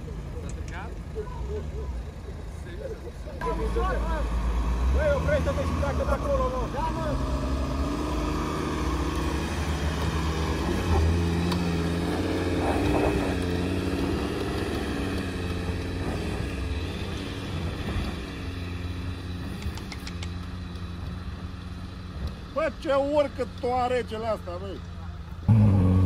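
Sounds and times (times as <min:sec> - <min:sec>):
car engine revving under load: 0:03.4 - 0:22.6, 0:25.2 - 0:26.0.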